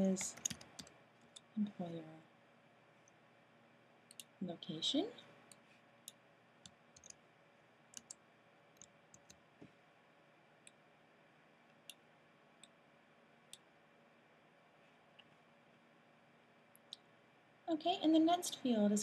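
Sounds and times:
mouse and keyboard clicks: 0:06.6 - 0:07.2, 0:08.0 - 0:08.2, 0:08.8 - 0:09.4.

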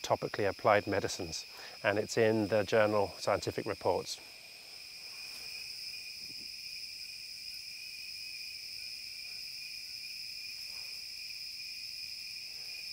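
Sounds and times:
insects trilling: 0:00.0 - 0:12.9.

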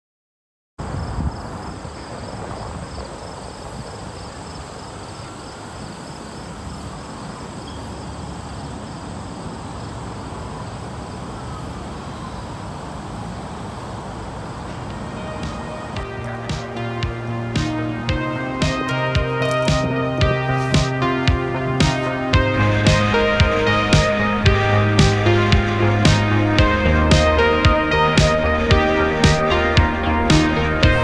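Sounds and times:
distant traffic: 0:00.8 - 0:31.0
wind rumble: 0:00.8 - 0:31.0
insects trilling: 0:00.9 - 0:15.8.

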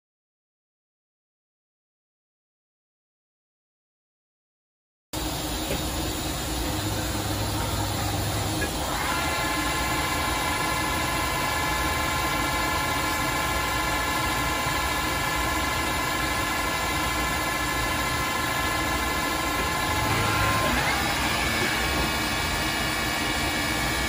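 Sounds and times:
lathe high whine: 0:05.2 - 0:24.0
low machine hum: 0:05.2 - 0:24.0.

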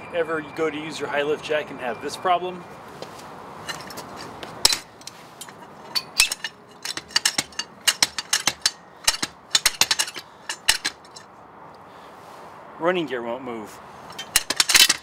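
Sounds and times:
jack clicking and clanking on steel: 0:03.6 - 0:11.3, 0:14.1 - 0:15.0.

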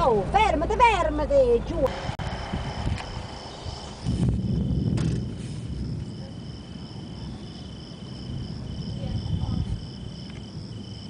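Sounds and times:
low rumble: 0:01.7 - 0:11.0
crickets trilling: 0:02.2 - 0:11.0.

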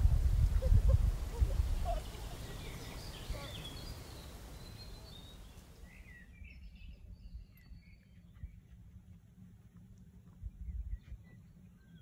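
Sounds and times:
bird chirps and calls: 0:00.6 - 0:08.0.

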